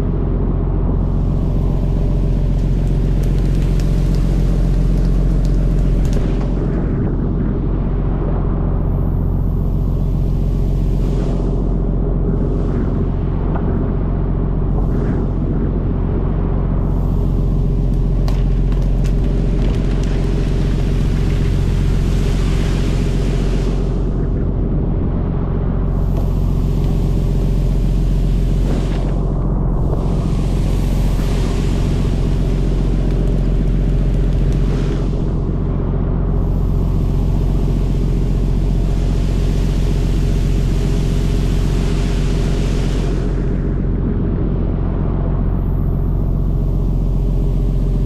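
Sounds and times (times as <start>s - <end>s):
boat engine droning: 0.0s - 48.0s
boat engine humming: 25.5s - 43.7s
water sprayers hissing: 30.0s - 35.3s.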